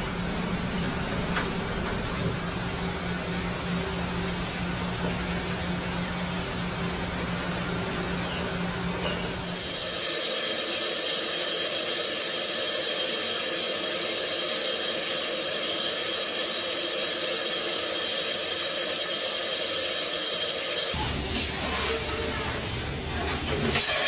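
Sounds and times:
machine spindle high hiss: 0:09.4 - 0:21.0.

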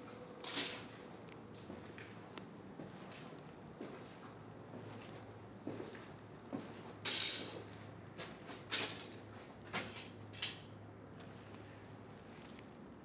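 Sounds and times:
footsteps scuffing on concrete: 0:02.8 - 0:06.9.

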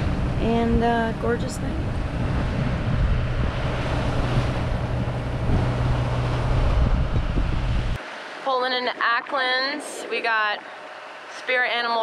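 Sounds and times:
wind buffeting microphone: 0:00.0 - 0:08.0
boat engine drone: 0:00.0 - 0:12.0
water rushing past hull: 0:01.7 - 0:08.0.

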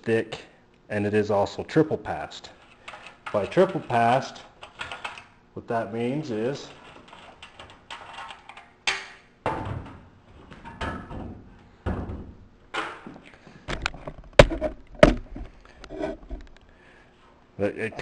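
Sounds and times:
metal radiator scraping and rattling: 0:02.6 - 0:04.3, 0:06.6 - 0:08.5.

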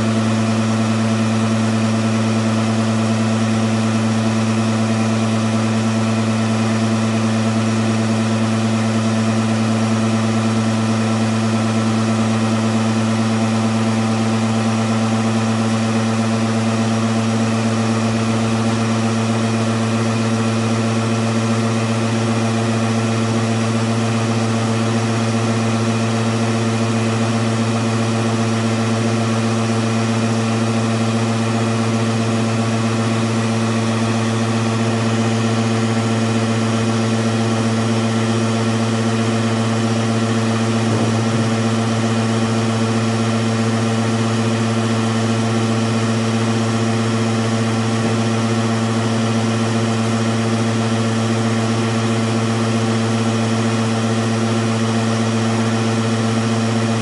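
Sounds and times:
centrifuge motor humming: 0:39.2 - 0:43.9.

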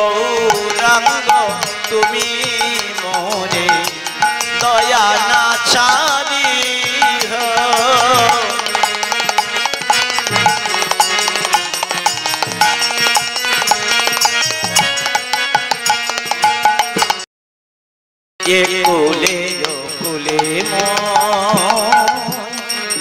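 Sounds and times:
hand drum strokes: 0:00.5 - 0:17.2
wavering melody line: 0:01.0 - 0:17.1.

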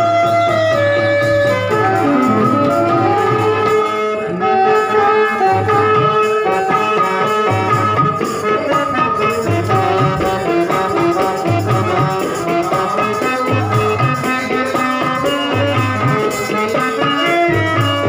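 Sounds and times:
harmonium: 0:00.0 - 0:18.0
electronic keyboard melody: 0:01.2 - 0:12.1.

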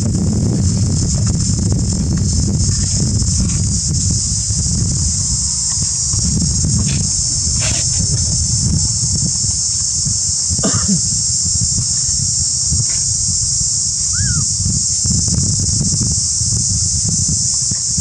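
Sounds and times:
insects buzzing: 0:00.0 - 0:18.0
low rumble: 0:00.0 - 0:18.0
arching whistle: 0:14.0 - 0:14.5.

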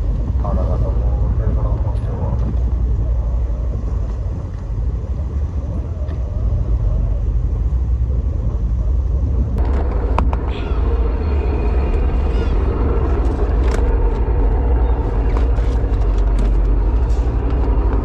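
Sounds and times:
boat engine rumbling: 0:00.0 - 0:18.0.

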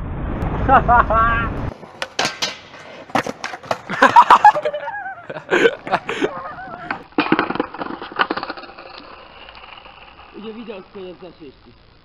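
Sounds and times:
skateboard clattering on concrete: 0:01.7 - 0:10.5
people shouting: 0:06.0 - 0:07.0.

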